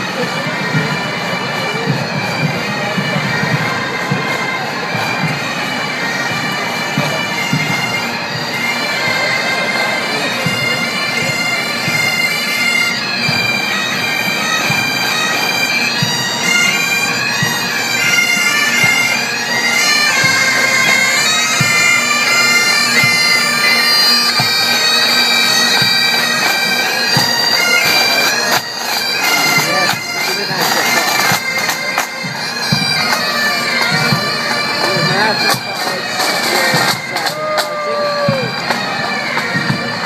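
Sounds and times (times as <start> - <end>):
drum beats: 0.0 - 9.5, 13.0 - 40.0
bagpipes playing: 0.0 - 40.0.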